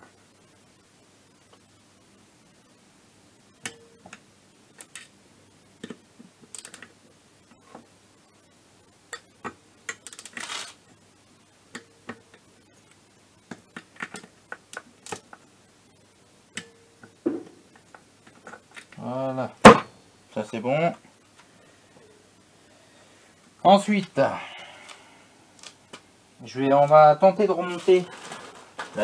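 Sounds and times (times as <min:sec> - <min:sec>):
hand ratchet clicking: 0:09.9 - 0:10.7.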